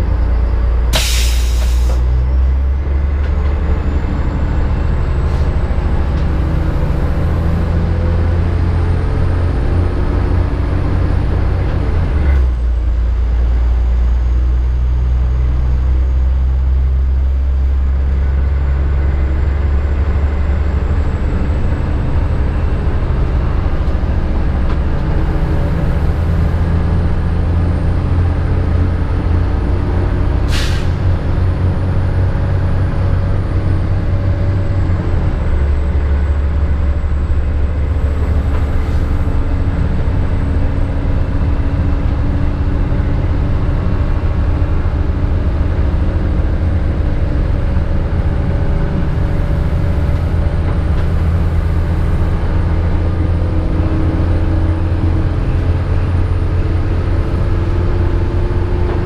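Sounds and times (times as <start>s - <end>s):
diesel engine drone: 0.0s - 59.0s
track running noise: 17.4s - 59.0s.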